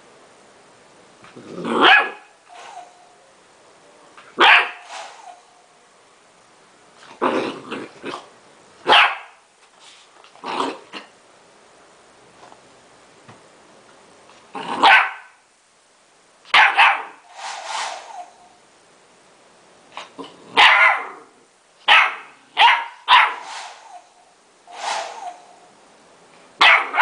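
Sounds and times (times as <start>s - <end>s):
puppy barking: 1.7s - 2.3s, 4.4s - 4.9s, 8.8s - 9.4s, 14.8s - 15.4s, 16.5s - 17.2s, 20.6s - 21.3s, 21.9s - 23.4s, 26.6s - 27.0s.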